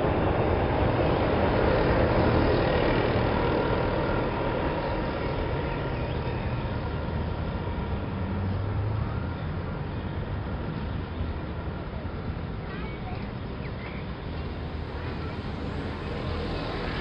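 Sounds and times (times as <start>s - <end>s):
moving vehicle rumble: 6.5s - 17.0s.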